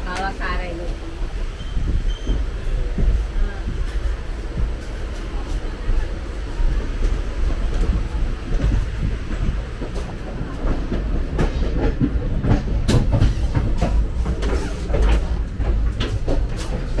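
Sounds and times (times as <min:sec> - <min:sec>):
train rumble from inside coach: 0:00.0 - 0:17.0
wheels knocking and rattling on track: 0:00.0 - 0:17.0.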